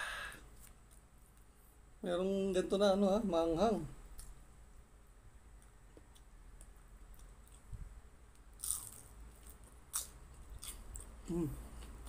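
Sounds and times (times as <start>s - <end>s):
crunching fried spring roll: 8.4s - 11.9s.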